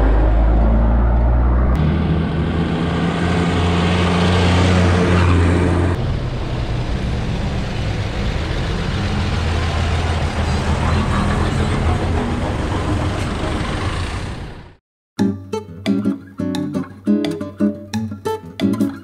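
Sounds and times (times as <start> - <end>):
road noise: 0.0 - 14.8
vehicle engine drone: 0.0 - 14.8.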